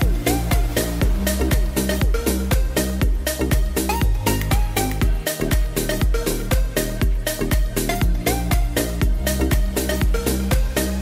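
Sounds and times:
upbeat electronic dance music: 0:00.0 - 0:11.0.

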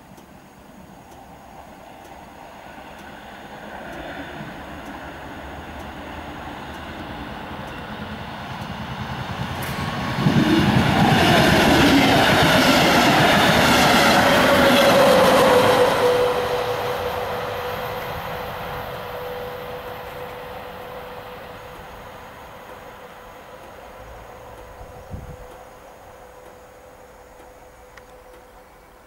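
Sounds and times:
train passing: 0:00.0 - 0:29.0
steady high tone: 0:09.2 - 0:29.0.

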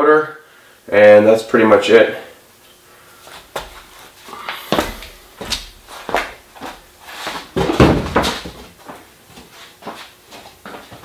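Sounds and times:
footsteps: 0:03.2 - 0:11.0.

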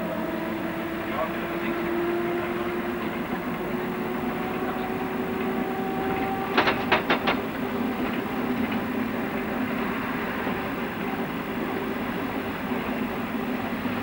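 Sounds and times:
tram motor hum: 0:00.0 - 0:14.0
tram running on track: 0:00.0 - 0:14.0
wheels clacking over rail joint: 0:06.1 - 0:08.9.

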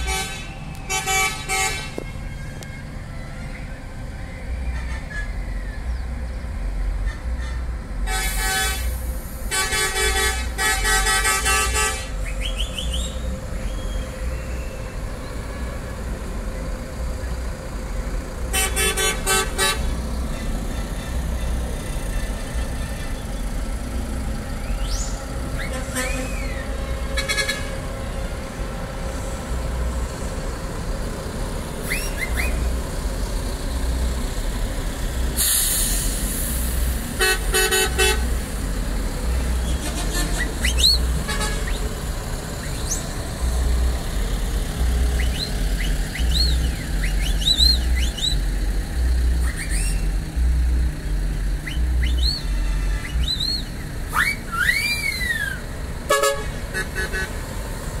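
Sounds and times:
bus horn blast: 0:00.0 - 0:02.7, 0:04.6 - 0:05.4, 0:07.0 - 0:16.1, 0:18.5 - 0:23.4, 0:25.0 - 0:28.3, 0:37.1 - 0:38.4, 0:39.3 - 0:41.8, 0:51.7 - 0:57.5
bus engines rumbling: 0:00.0 - 0:58.0
short hiss: 0:35.4 - 0:36.9.

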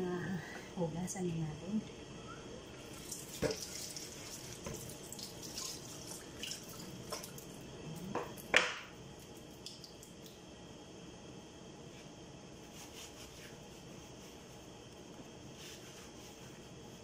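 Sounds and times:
water splashing at a sink: 0:02.8 - 0:10.4.

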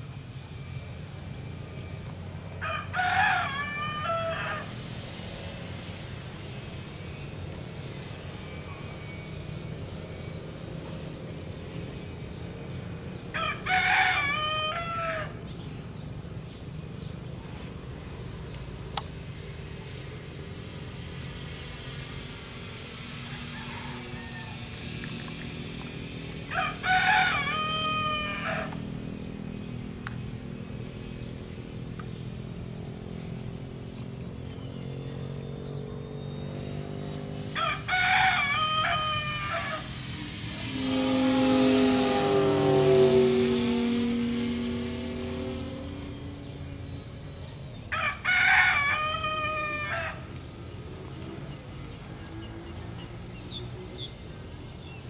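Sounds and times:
rooster crowing: 0:02.6 - 0:04.8, 0:13.3 - 0:15.4, 0:23.2 - 0:24.8, 0:26.5 - 0:28.8, 0:37.6 - 0:40.0, 0:47.9 - 0:50.2
rushing sound: 0:37.2 - 0:48.2.

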